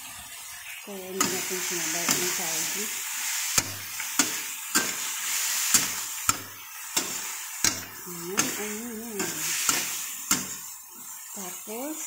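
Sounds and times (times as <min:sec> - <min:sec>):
food sizzling: 0:00.0 - 0:12.0
metal spatula clanking in wok: 0:03.6 - 0:05.1, 0:05.7 - 0:10.7.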